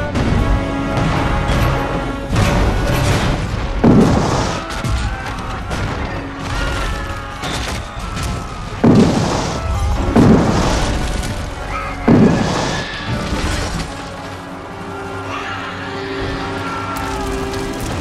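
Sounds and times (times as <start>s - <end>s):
dramatic film score music: 0.0s - 18.0s.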